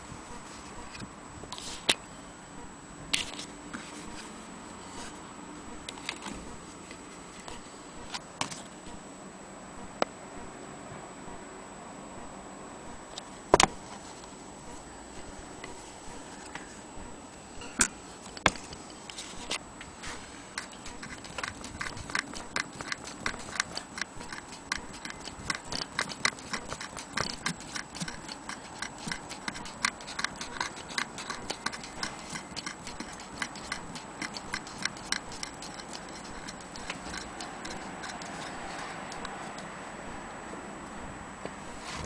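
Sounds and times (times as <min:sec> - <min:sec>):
needle mechanism clicking: 0:20.6 - 0:39.7.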